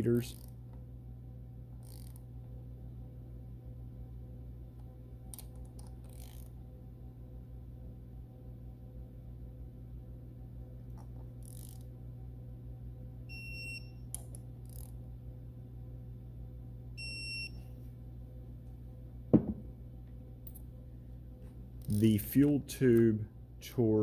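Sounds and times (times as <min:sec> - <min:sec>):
sharp thump: 0:19.3 - 0:19.7.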